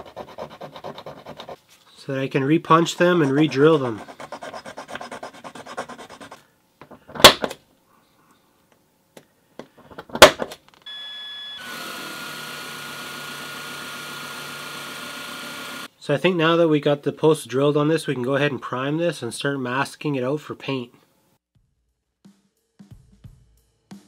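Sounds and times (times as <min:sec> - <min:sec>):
metal file scraping: 0:00.0 - 0:01.6, 0:02.7 - 0:06.4
small drill whining: 0:10.9 - 0:15.9.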